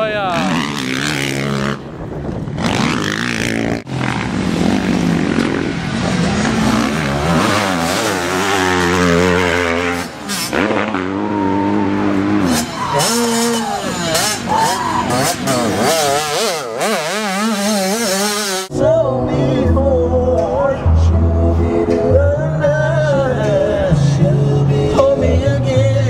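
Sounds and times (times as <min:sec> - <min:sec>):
dirt bike engines revving: 0:00.0 - 0:18.7.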